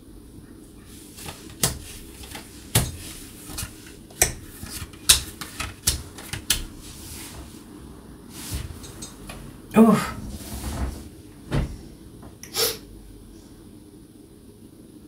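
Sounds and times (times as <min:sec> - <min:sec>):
cards tapping on a table: 0:01.2 - 0:06.8.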